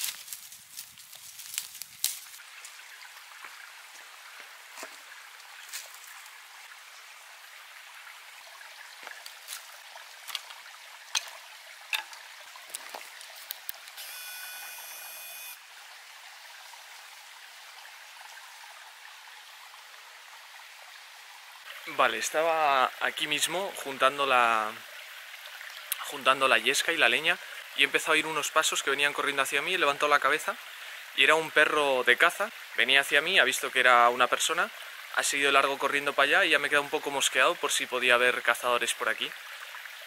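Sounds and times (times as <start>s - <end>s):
dry twigs snapping: 0.0s - 2.4s
stream rushing: 2.1s - 14.6s.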